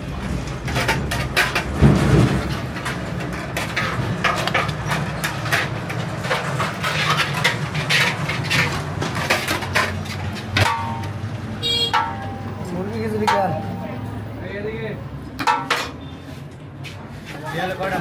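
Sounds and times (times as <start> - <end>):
metal spoon scraping pot: 2.6 - 11.1.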